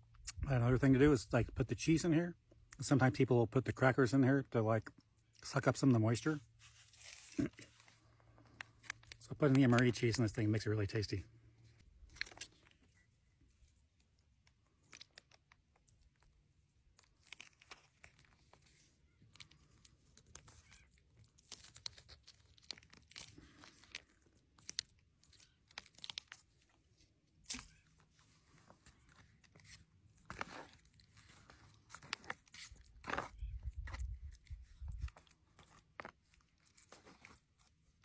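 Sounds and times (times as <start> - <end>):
foil pouches crinkling: 14.2 - 38.0.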